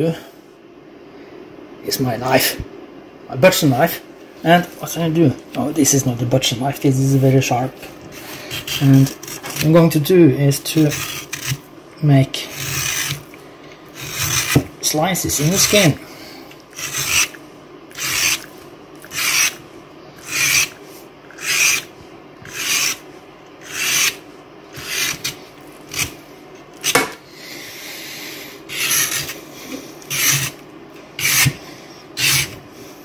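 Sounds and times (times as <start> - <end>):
knife blade scraping pork rind: 8.1 - 9.9, 10.7 - 11.6, 12.4 - 13.3, 14.0 - 14.7, 15.3 - 16.0, 16.7 - 19.6, 20.2 - 23.0, 23.6 - 26.2, 26.8 - 27.1, 28.7 - 29.4, 30.0 - 30.6, 31.2 - 31.6, 32.2 - 32.6.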